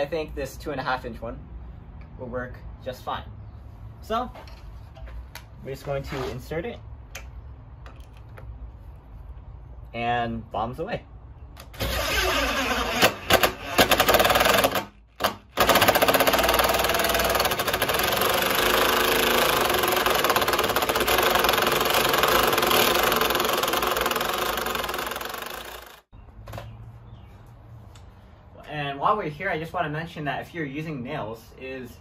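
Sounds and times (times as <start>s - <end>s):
impact driver hammering screw: 11.7s - 26.0s.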